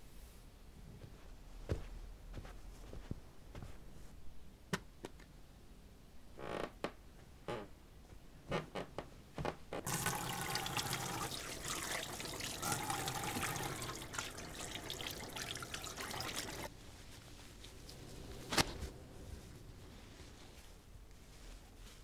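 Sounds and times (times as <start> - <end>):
hands washing under water: 9.9 - 16.7.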